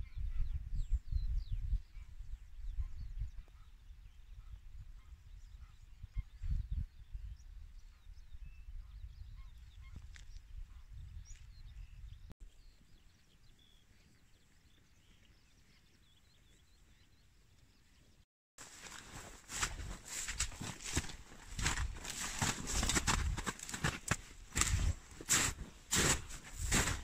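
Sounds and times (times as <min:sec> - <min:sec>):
wind rumble on microphone: 0:00.0 - 0:12.3, 0:19.6 - 0:27.0.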